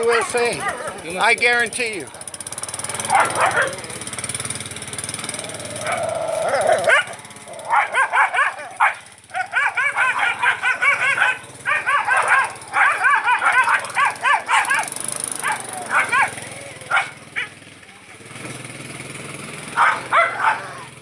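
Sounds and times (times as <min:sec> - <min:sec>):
dog yapping: 0:00.0 - 0:01.2, 0:02.9 - 0:04.0, 0:05.4 - 0:17.6, 0:19.8 - 0:20.9.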